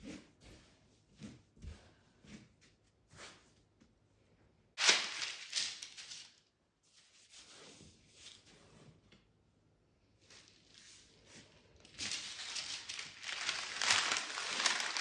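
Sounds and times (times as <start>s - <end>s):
baking parchment rustling: 4.8s - 7.4s, 10.2s - 15.0s
soft paper rustles: 4.8s - 9.1s, 10.2s - 15.0s.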